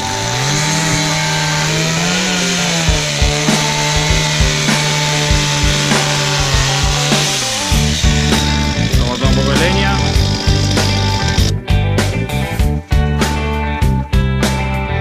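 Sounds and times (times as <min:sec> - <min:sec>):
chainsaw cutting log: 0:00.0 - 0:11.5
background music: 0:00.0 - 0:15.0.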